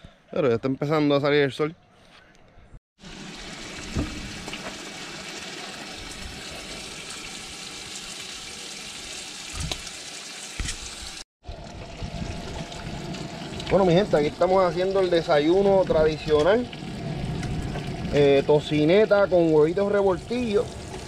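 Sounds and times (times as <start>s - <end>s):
bacon sizzling in a pan: 3.0s - 11.2s.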